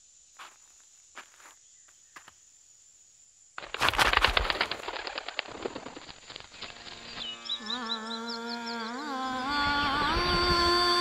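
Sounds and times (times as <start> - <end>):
bird wings flapping: 3.6 - 7.2.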